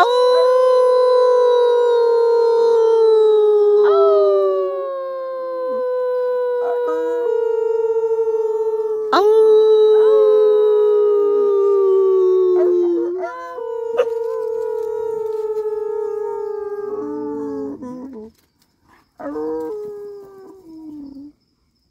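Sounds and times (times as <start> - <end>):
dogs howling: 3.5 - 4.9, 5.6 - 18.3, 19.2 - 21.3.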